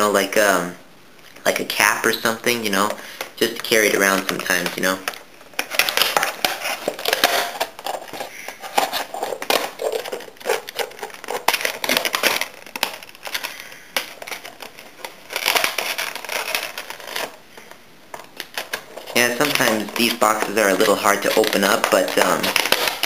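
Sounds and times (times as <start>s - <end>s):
plastic packaging crackling: 1.4s - 23.0s
scissors snipping plastic: 18.2s - 23.0s.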